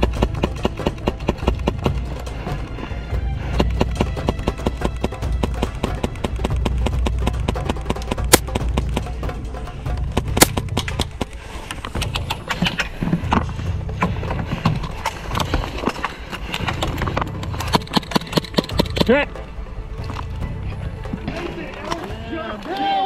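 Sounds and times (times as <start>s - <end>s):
sharp cracks: 0.0s - 2.4s, 3.6s - 13.0s, 14.8s - 19.2s
pellets striking: 0.0s - 2.7s, 3.6s - 19.4s
background music with low bass: 0.0s - 23.0s
airsoft gunfire clicking: 3.6s - 9.2s, 10.0s - 11.4s.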